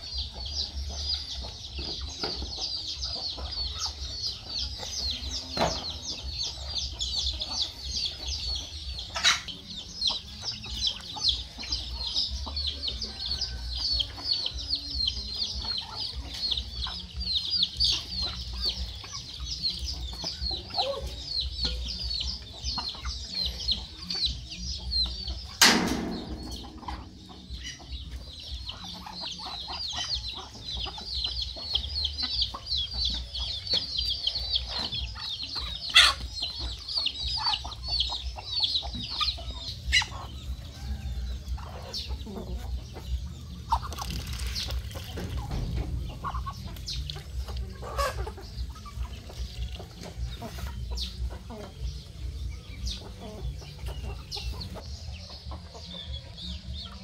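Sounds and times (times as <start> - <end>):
chicks peeping: 0.0 - 57.0
hens clucking: 0.0 - 57.0.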